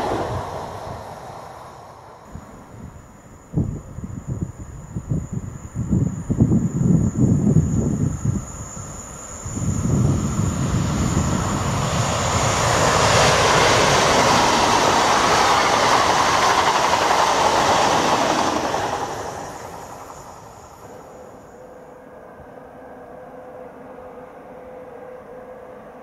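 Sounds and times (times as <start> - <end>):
train wheels rushing on rail: 0.0 - 2.9, 5.9 - 21.4.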